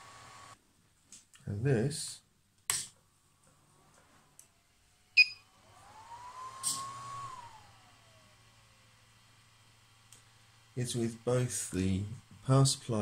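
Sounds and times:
cooling fans whining: 0:03.2 - 0:13.0.

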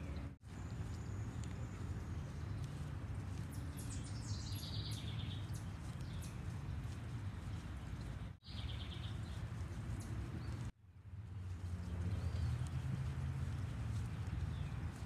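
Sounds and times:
small bird chirping: 0:00.0 - 0:10.7.

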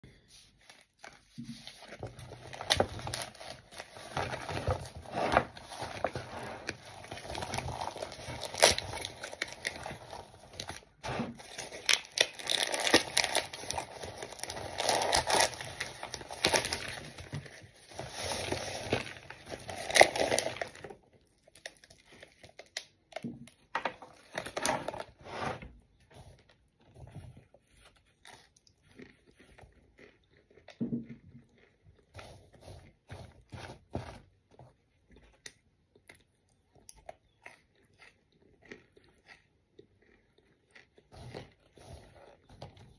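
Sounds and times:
cardboard and paper tearing: 0:01.2 - 0:20.9.

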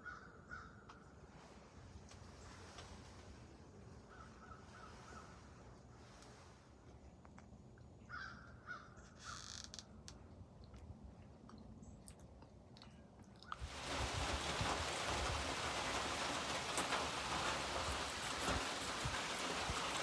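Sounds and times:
bird calling: 0:00.0 - 0:01.1, 0:04.0 - 0:05.5, 0:08.0 - 0:09.8
rain on leaf litter: 0:13.5 - 0:20.0.

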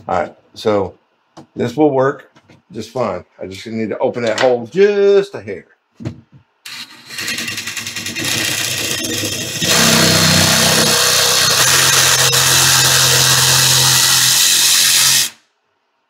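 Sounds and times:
power tool cutting drywall: 0:06.7 - 0:15.4.

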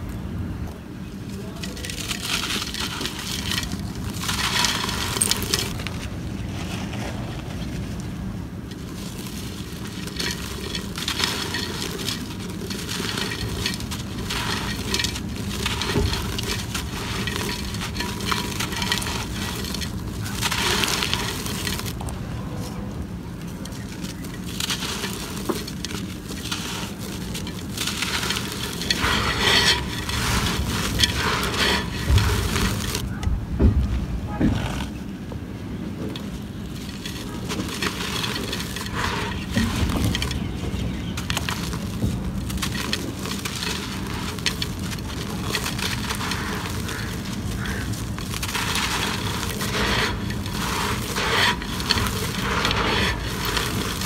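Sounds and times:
grit pattering into clay pot: 0:00.0 - 0:33.2, 0:33.9 - 0:54.0
dirt crunching under hands: 0:00.7 - 0:54.0.

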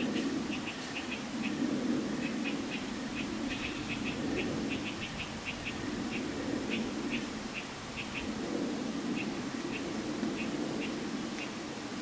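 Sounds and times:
breeze rushing: 0:00.0 - 0:12.0.

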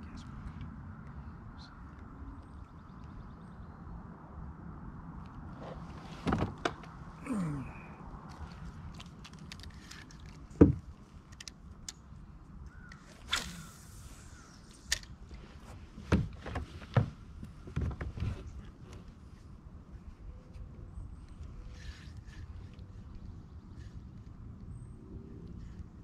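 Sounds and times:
fishing tackle knocks and clicks: 0:08.3 - 0:12.0.

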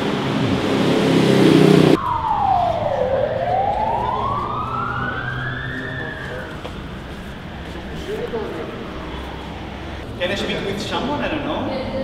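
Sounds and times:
loud busy background noise: 0:00.0 - 0:12.0
siren wailing: 0:01.8 - 0:10.1.

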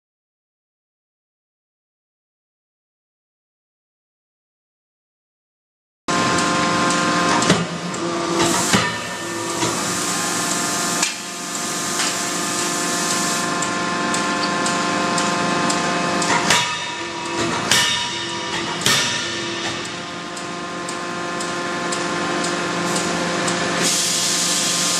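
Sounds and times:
machinery hum and hiss: 0:06.1 - 0:24.9
forging hammer blows: 0:16.2 - 0:20.2.

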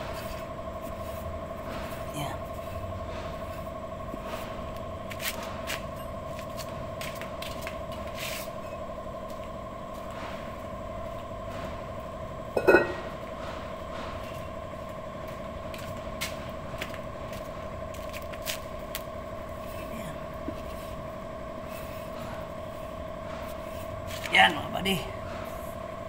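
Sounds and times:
steady two-tone hum: 0:00.0 - 0:26.0
loud ringing metallic clang: 0:12.6 - 0:13.2.

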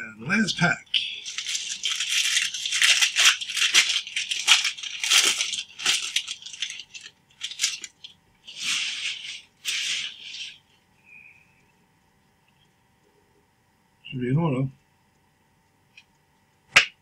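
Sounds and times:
wrapper crinkling and tearing: 0:01.0 - 0:10.6.

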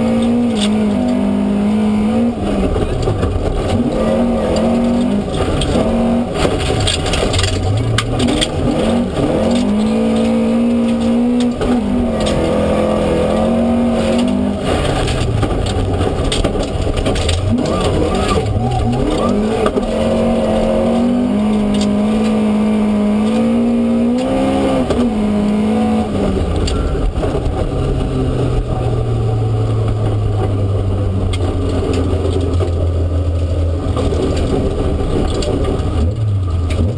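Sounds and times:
rally car engine revving: 0:00.0 - 0:36.9
clicks and rattles: 0:02.6 - 0:22.6, 0:29.8 - 0:36.9.

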